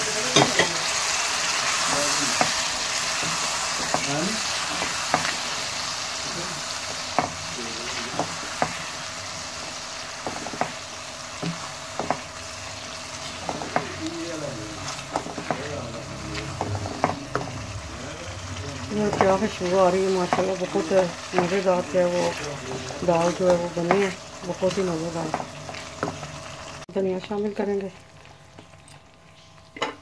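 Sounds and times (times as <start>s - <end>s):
lentils sizzling in a pan: 0.0s - 29.8s
spatula scraping a pan: 6.9s - 17.7s, 18.8s - 26.4s.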